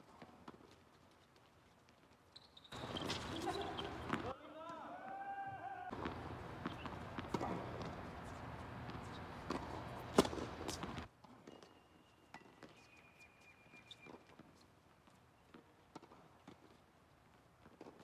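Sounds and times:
footsteps on hard court: 0:00.0 - 0:05.2, 0:05.9 - 0:18.0
tennis balls hit by rackets: 0:02.7 - 0:05.2, 0:05.9 - 0:13.0, 0:15.5 - 0:16.9.

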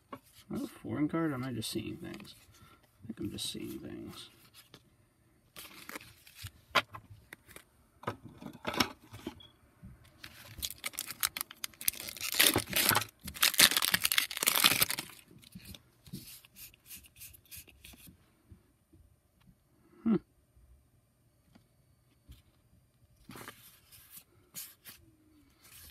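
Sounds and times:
foil wrapper crinkling and tearing: 0:05.6 - 0:06.5, 0:10.2 - 0:15.6.

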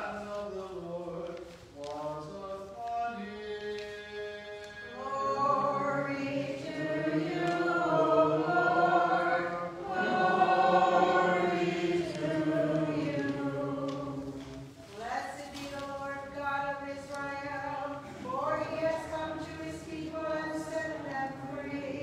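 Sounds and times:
choir chanting a cappella: 0:00.0 - 0:14.8, 0:16.0 - 0:22.0.

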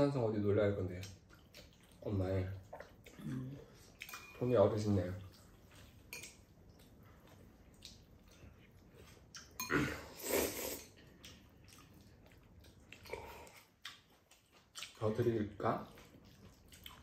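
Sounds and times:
person slurping noodles: 0:09.7 - 0:11.0.

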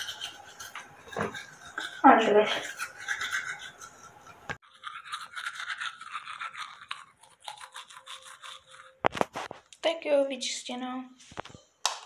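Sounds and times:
toothbrush scrubbing teeth: 0:00.0 - 0:09.6.

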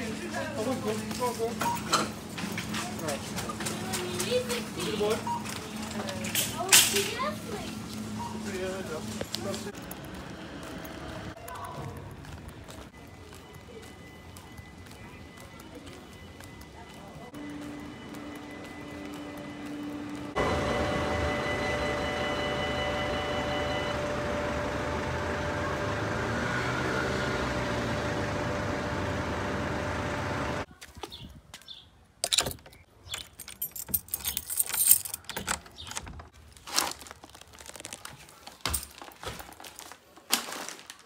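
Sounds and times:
train rushing past: 0:17.4 - 0:30.7.

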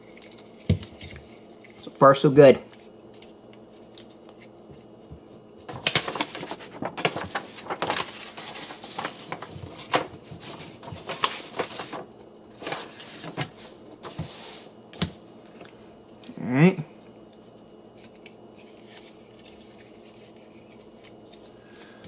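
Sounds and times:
paper sheet rustling: 0:05.6 - 0:15.2.

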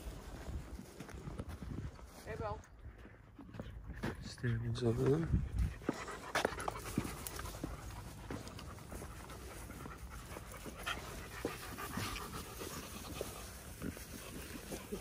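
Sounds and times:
dog panting: 0:02.8 - 0:15.0
rustling through grass: 0:08.9 - 0:15.0.

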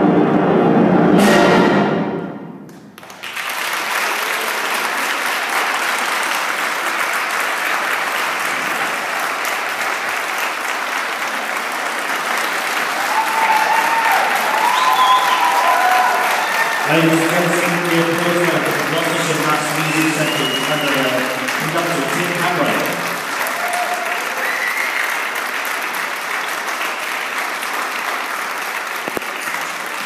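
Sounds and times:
cymbal crash: 0:00.0 - 0:02.7
audience applause: 0:03.0 - 0:30.0.

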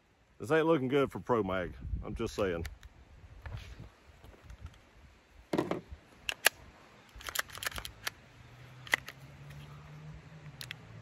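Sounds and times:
pistol and magazine clicking: 0:06.2 - 0:08.2, 0:08.8 - 0:09.2.

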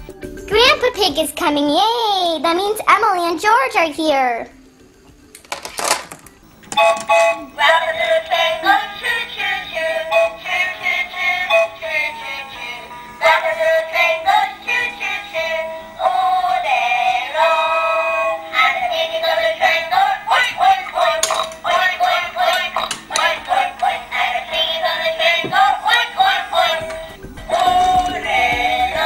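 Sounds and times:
toy playing tinny electronic song: 0:06.7 - 0:29.0.

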